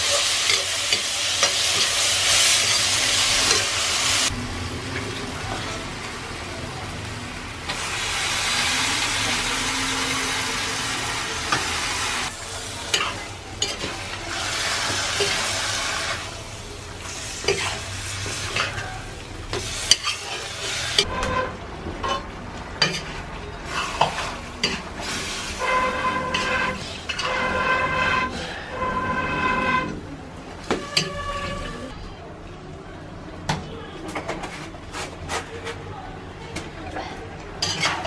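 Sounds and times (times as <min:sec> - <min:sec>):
meat sizzling in hot oil: 0:00.0 - 0:04.3, 0:07.7 - 0:21.1
metal spatula scraping a wok: 0:17.1 - 0:30.0, 0:30.8 - 0:32.0.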